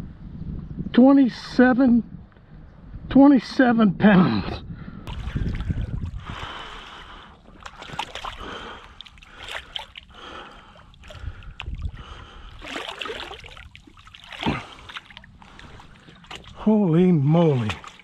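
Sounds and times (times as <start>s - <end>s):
water sloshing and splashing: 5.1s - 18.0s.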